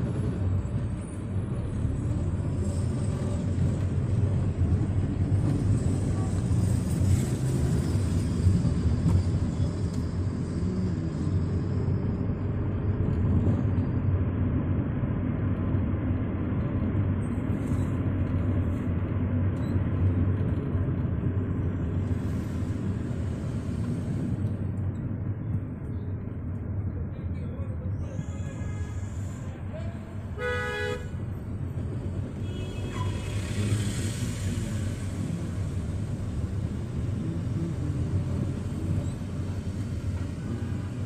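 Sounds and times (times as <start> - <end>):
tyres on road: 0.0 - 41.0
vehicle engine rumble: 0.0 - 41.0.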